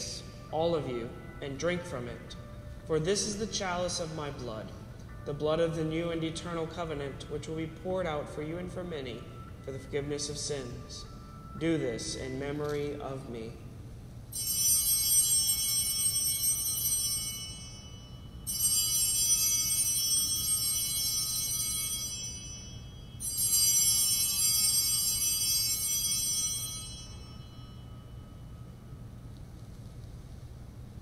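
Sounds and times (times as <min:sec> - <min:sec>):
altar bells jingling: 0:14.3 - 0:29.0.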